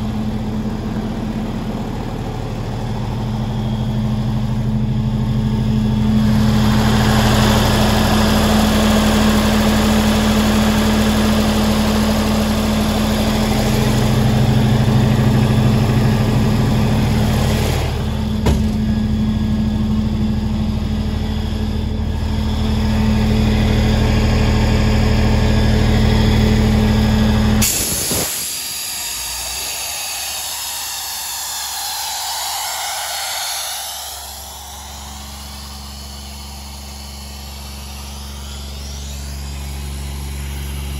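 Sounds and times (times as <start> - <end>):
generator engine humming: 0.0 - 40.9
single clunk: 18.4 - 18.9
hissing rush: 27.6 - 40.9.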